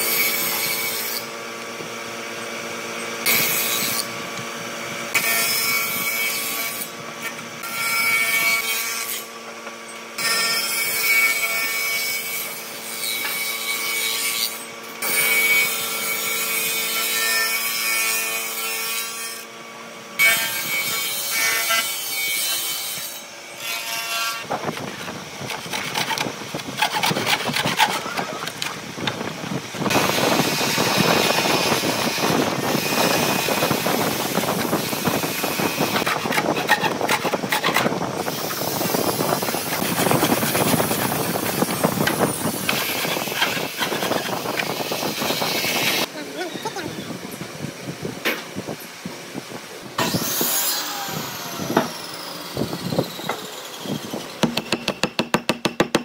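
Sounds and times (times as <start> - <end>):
woodworking machine cutting boards: 0.0 - 47.1, 49.9 - 56.0
hand saw cutting wood: 20.2 - 29.2, 29.8 - 46.1, 50.0 - 56.0.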